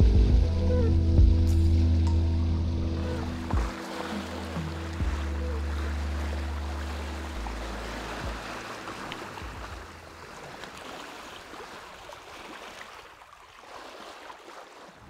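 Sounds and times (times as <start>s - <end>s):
background music: 0.0s - 10.2s.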